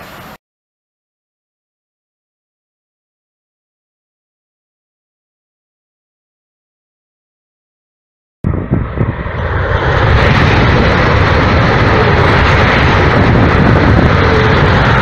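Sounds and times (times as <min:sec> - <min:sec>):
high-speed train passing: 0:00.0 - 0:00.4, 0:08.4 - 0:15.0.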